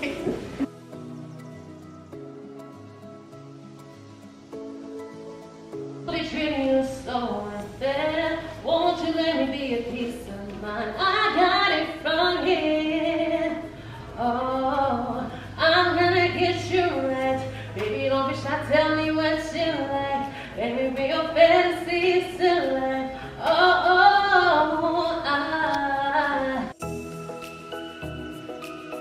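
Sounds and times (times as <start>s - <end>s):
keyboard: 0.0s - 29.0s
woman singing: 6.1s - 26.8s.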